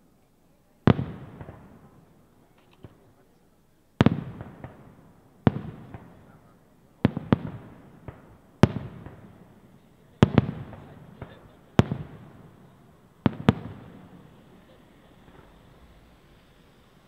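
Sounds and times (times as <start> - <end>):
firework shells bursting: 0.8 - 3.4, 4.0 - 17.0.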